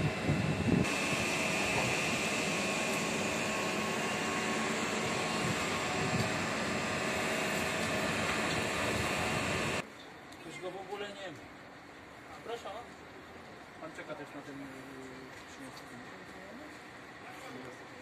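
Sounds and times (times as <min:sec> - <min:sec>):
high whine: 0:00.0 - 0:09.8
steady machine noise: 0:00.0 - 0:09.8.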